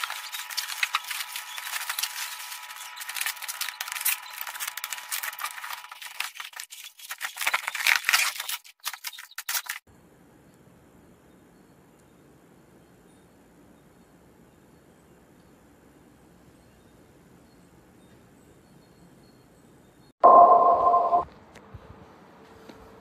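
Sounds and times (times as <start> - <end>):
bubble wrap crinkling and crackling: 0.0 - 9.8.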